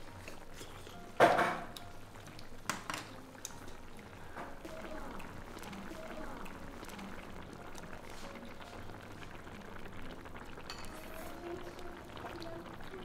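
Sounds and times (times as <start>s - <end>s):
broth bubbling: 0.0s - 13.0s
small pops and clicks: 1.7s - 3.8s.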